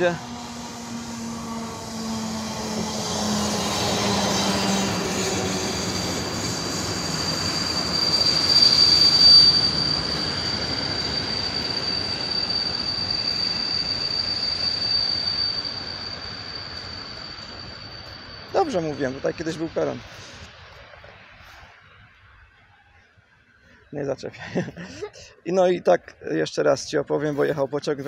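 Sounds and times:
high-pitched wheel squeal: 0.0 - 20.4
train cars rumbling: 0.0 - 21.3.

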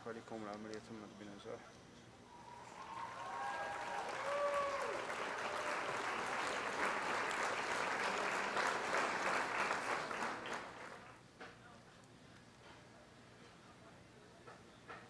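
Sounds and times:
short whistle-like tones: 2.2 - 3.9
crowd applause: 2.3 - 11.2.

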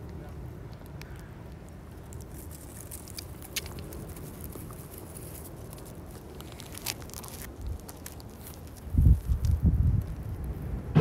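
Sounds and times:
dry straw rustling: 2.1 - 10.3
steady low rumble: 9.6 - 11.0.

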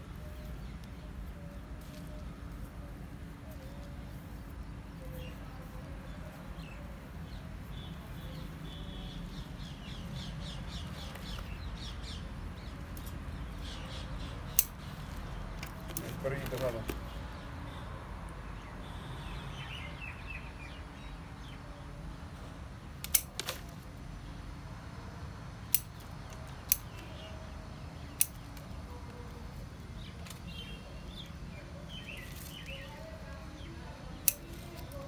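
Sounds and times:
scissors snipping leaves: 34.2 - 35.0.

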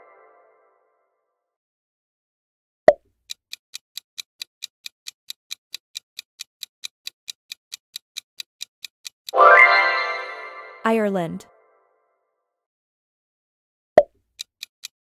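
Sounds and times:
clock-like ticking: 3.2 - 9.4, 14.3 - 15.0.

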